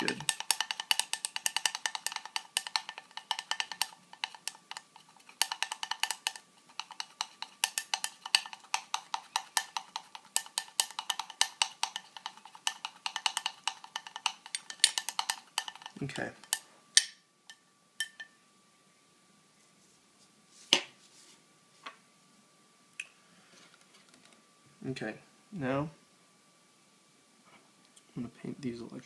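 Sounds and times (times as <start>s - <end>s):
stirrer clinking against glass: 0.0s - 18.4s.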